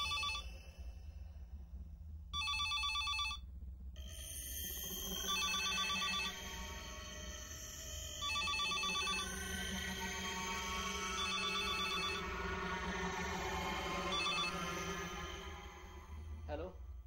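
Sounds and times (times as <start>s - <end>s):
steady low hum: 0.0s - 17.0s
telephone electronic trilling ring: 8.2s - 9.2s.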